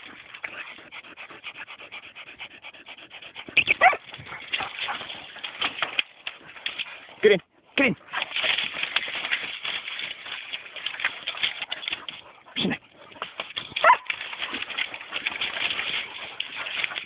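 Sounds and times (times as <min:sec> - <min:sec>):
dog whining: 0:03.6 - 0:04.0
twigs crackling and snapping: 0:13.1 - 0:17.0.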